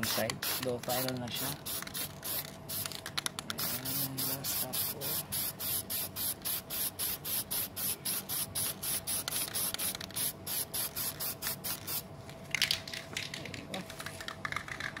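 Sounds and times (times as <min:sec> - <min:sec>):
spray can hissing in pulses: 0:03.6 - 0:12.0.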